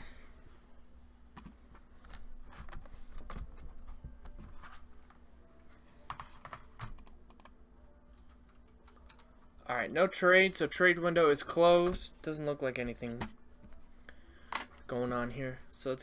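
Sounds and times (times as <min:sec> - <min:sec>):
faint steady hum: 0:00.0 - 0:16.0
computer keyboard clicking: 0:06.8 - 0:07.5.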